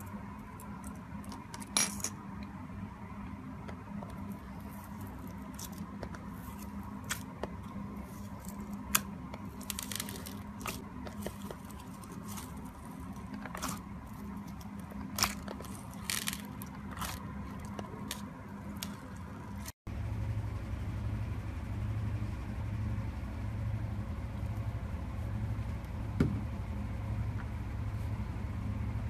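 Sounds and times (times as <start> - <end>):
steady low hum: 0.0 - 29.0
beads crackling in slime: 4.8 - 19.8.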